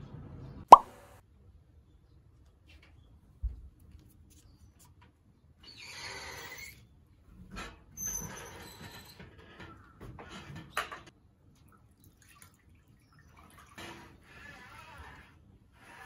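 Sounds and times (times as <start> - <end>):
water splashing in a basin: 11.6 - 14.2.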